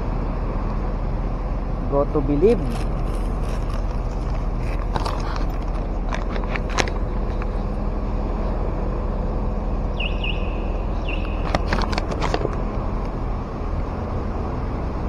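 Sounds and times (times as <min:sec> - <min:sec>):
road traffic rumble: 0:00.0 - 0:15.0
short high chirp: 0:10.0 - 0:11.5.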